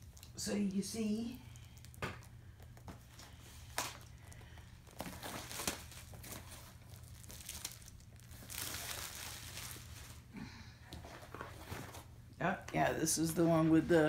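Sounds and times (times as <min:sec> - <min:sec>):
plastic packaging crinkling: 0:03.0 - 0:10.3.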